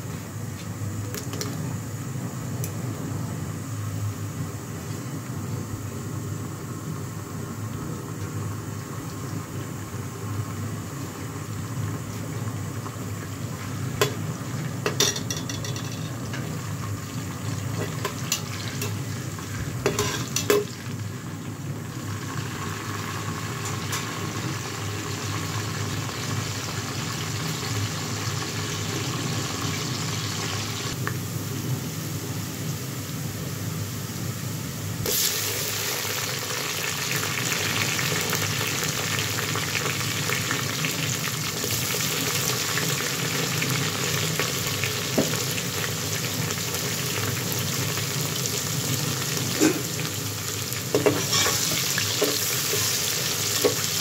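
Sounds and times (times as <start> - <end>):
onions sizzling in oil: 0.4 - 54.0.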